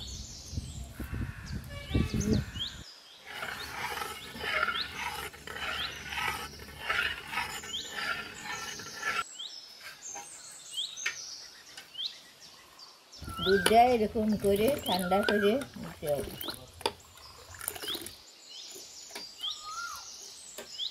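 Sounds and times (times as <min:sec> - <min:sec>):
birds chirping: 0:00.0 - 0:20.9
spoon stirring milk in metal pan: 0:03.3 - 0:09.2, 0:13.4 - 0:17.0.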